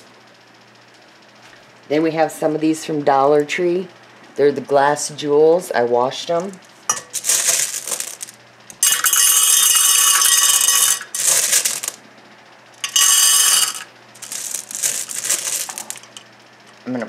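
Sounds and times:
glass gems clinking into bowl: 0:06.9 - 0:11.9, 0:12.8 - 0:16.1.

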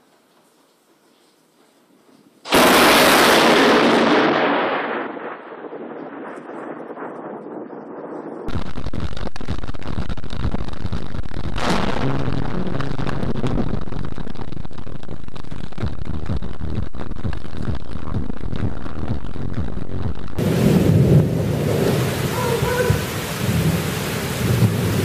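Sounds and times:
rain and wind on microphone: 0:01.8 - 0:25.0
thunder crack: 0:02.5 - 0:12.5, 0:20.4 - 0:25.0.

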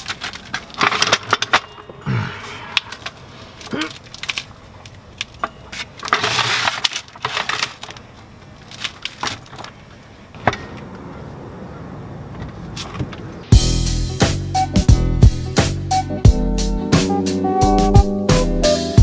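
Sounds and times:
rattling scrape: 0:06.0 - 0:07.8.

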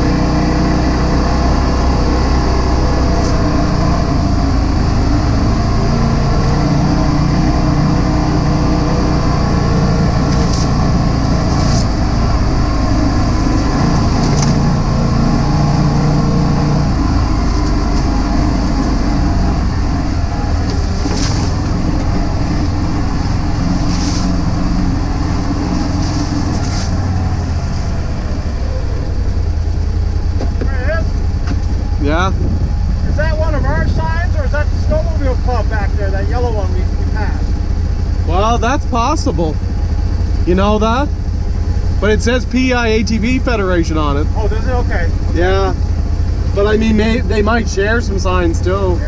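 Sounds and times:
drivetrain and tyre noise: 0:00.0 - 0:49.0
vehicle engine running: 0:00.0 - 0:49.0
short swishes: 0:11.4 - 0:12.0, 0:23.8 - 0:24.4, 0:25.8 - 0:27.0.

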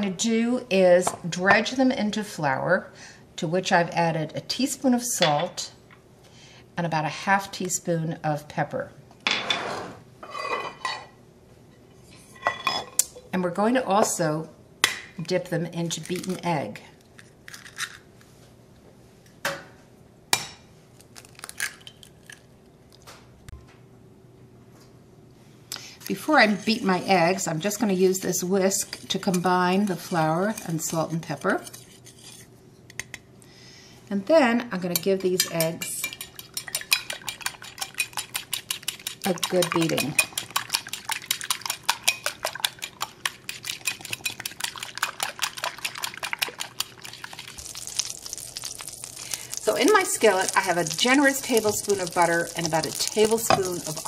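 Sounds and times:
eggshell crackling: 0:36.2 - 0:54.0.

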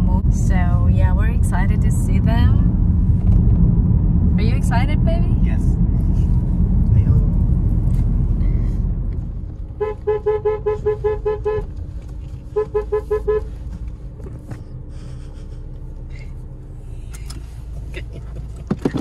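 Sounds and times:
car engine running: 0:00.0 - 0:19.0
car horn toots: 0:09.7 - 0:11.8, 0:12.5 - 0:13.6.

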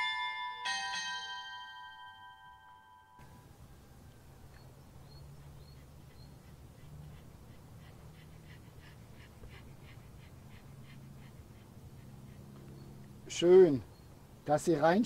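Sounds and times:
dog panting rapidly: 0:05.0 - 0:14.4.

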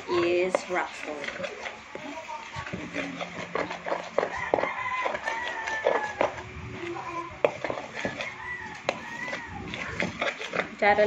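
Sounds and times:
utensil stirring batter in bowl: 0:00.0 - 0:11.0
rooster crowing: 0:03.6 - 0:06.4, 0:07.8 - 0:10.0.

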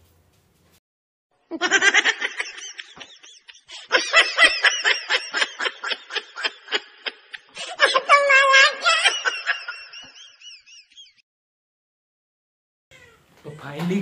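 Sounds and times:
man laughing hard: 0:01.5 - 0:11.2.

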